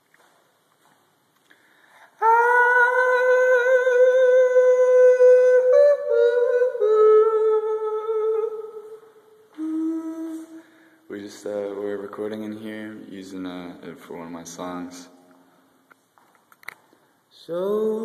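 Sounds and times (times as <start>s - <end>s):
person singing long notes: 2.2s - 10.8s.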